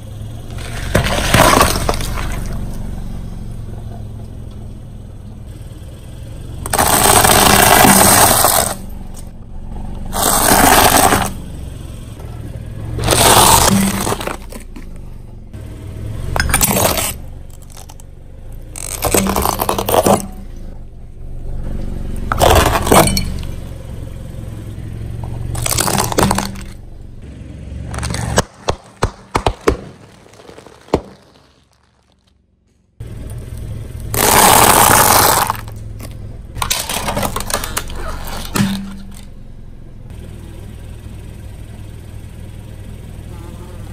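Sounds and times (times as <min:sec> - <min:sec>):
car engine running: 0:00.0 - 0:43.9
tyre crushing plastic objects: 0:00.6 - 0:02.6, 0:06.7 - 0:08.8, 0:10.2 - 0:11.4, 0:13.0 - 0:14.8, 0:16.4 - 0:18.0, 0:18.8 - 0:20.4, 0:22.3 - 0:23.5, 0:25.5 - 0:26.8, 0:27.9 - 0:32.4, 0:34.2 - 0:39.3
short sharp cracks: 0:27.9 - 0:32.4.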